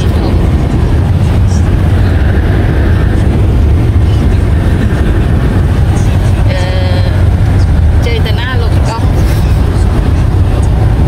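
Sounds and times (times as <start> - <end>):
car driving heard inside cabin: 0.0 - 11.0.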